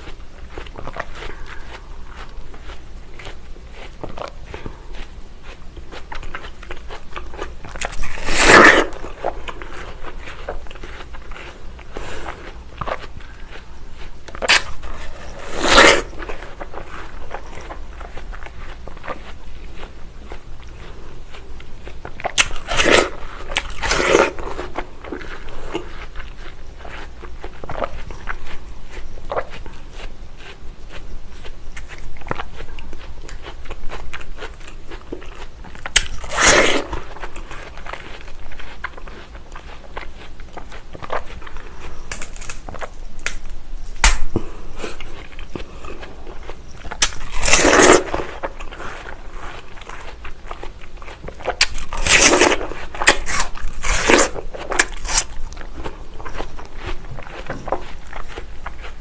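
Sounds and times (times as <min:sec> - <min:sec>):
chewing with wet clicks: 0:00.0 - 0:08.2, 0:08.9 - 0:15.4, 0:16.2 - 0:59.0
juicy watermelon crunches: 0:00.0 - 0:59.0
watermelon slice snapping: 0:14.4 - 0:16.1, 0:42.1 - 0:44.4.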